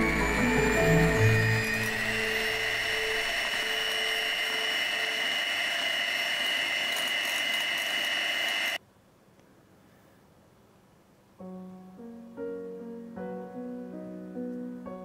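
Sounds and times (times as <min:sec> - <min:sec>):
electric hand mixer whine: 0:00.0 - 0:08.8.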